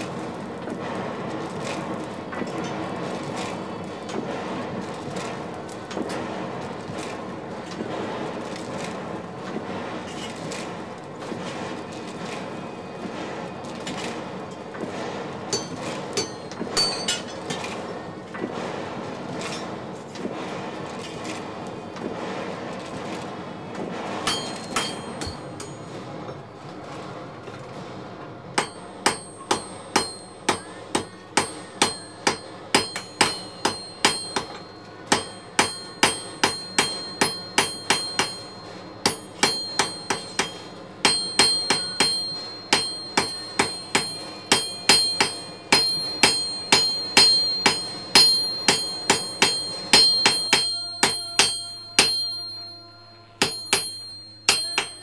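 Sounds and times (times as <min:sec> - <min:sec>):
hammer striking metal: 0:15.5 - 0:17.6, 0:24.2 - 0:26.0, 0:28.6 - 0:55.0.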